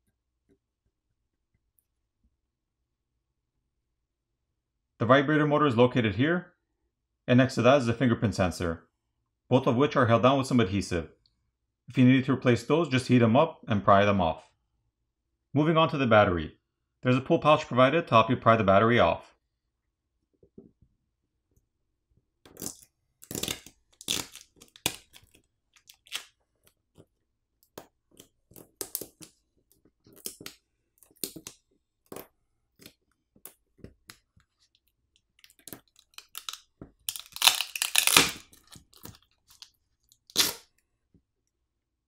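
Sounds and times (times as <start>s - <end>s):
adhesive crackling and tearing: 22.5s - 34.2s, 35.1s - 40.7s.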